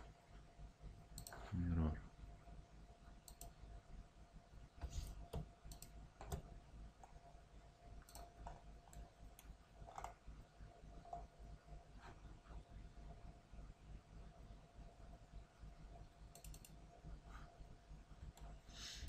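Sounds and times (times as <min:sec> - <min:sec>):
faint steady hum: 0:00.0 - 0:19.0
computer mouse clicks: 0:01.1 - 0:01.5, 0:03.2 - 0:03.6, 0:04.8 - 0:07.2, 0:08.0 - 0:10.2, 0:16.3 - 0:16.8.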